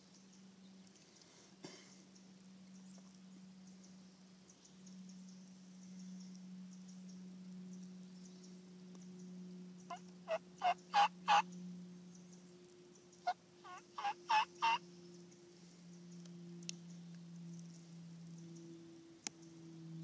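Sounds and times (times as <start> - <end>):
faint steady low hum: 0.0 - 20.0
wild turkey yelps: 9.9 - 11.4, 13.2 - 14.8.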